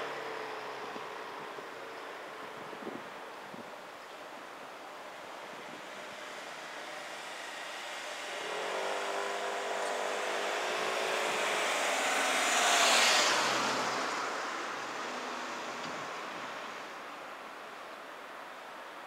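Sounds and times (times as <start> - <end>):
vehicle passing by: 6.1 - 17.0.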